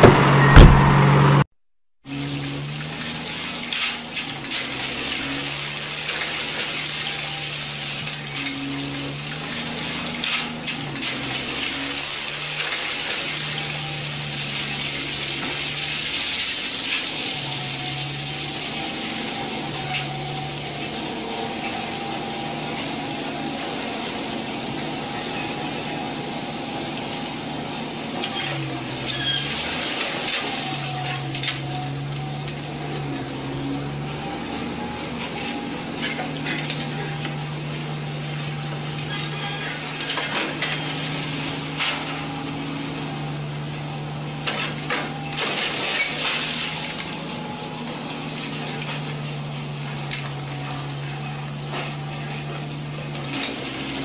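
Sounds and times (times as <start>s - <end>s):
toy bulldozer motor humming: 2.2s - 54.0s.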